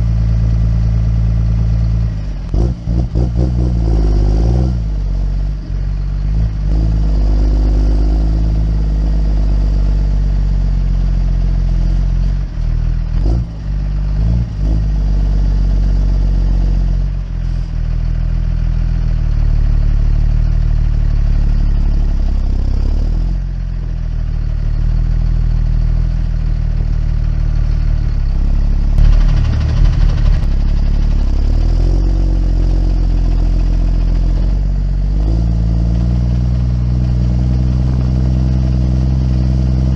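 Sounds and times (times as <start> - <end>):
diesel engine running: 0.0 - 39.9
sharp clattering knocks: 29.0 - 32.1.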